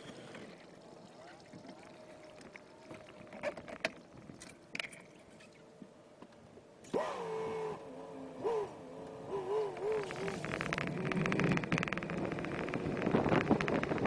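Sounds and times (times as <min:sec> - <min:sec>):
outboard motor revving: 0:06.8 - 0:14.0.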